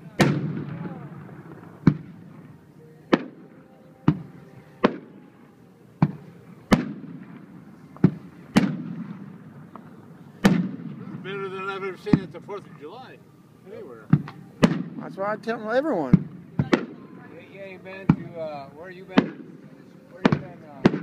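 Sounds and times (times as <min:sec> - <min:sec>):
firework shells bursting: 0:08.0 - 0:09.4.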